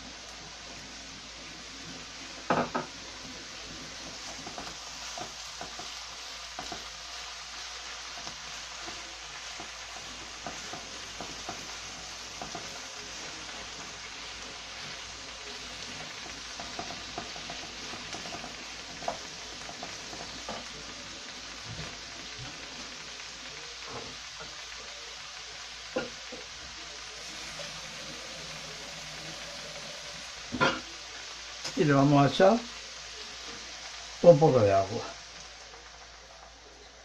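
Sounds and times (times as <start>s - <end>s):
food sizzling in a pan: 0.0s - 37.0s
wooden spoon knocking a pan: 2.4s - 3.0s, 4.2s - 7.0s, 10.4s - 12.8s.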